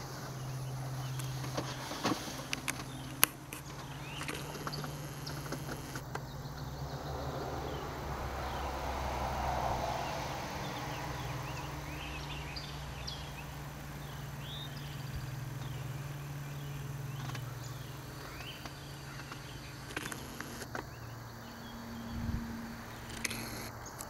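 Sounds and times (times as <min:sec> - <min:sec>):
steady low hum: 0:00.0 - 0:23.9
birds chirping: 0:00.0 - 0:24.0
sharp clicks: 0:01.0 - 0:06.3, 0:16.8 - 0:21.0, 0:22.9 - 0:24.0.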